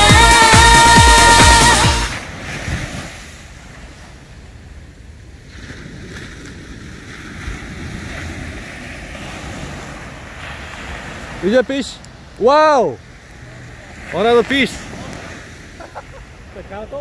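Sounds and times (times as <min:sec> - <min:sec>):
music track: 0:00.0 - 0:02.2
ocean surf breaking on beach: 0:00.0 - 0:17.0
wind buffeting microphone: 0:02.1 - 0:11.4.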